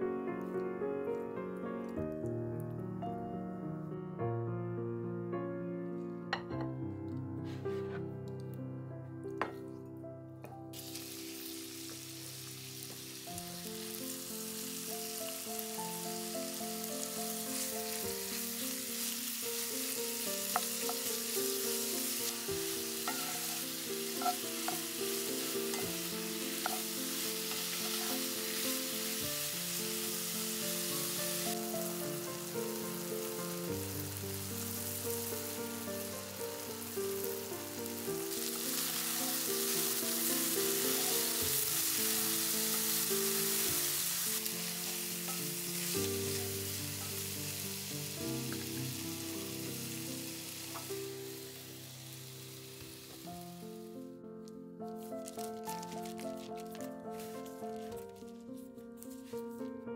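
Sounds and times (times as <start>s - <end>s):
soft background music: 0.0s - 59.9s
food sizzling in a pan: 10.7s - 54.0s, 54.9s - 58.2s.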